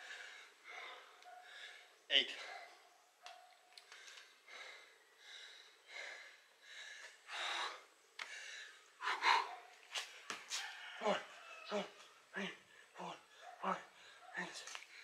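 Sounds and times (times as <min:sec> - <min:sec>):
man breathing hard: 0:00.0 - 0:02.5, 0:03.8 - 0:09.6.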